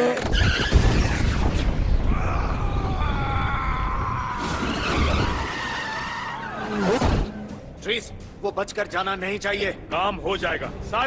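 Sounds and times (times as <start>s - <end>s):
tyres squealing in a skid: 0.2s - 1.6s, 4.2s - 7.4s.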